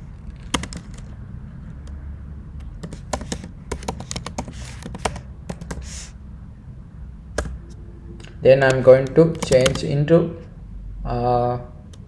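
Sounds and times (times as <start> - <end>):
low steady hum: 0.0 - 12.0
keyboard keystroke clicks: 8.6 - 9.8.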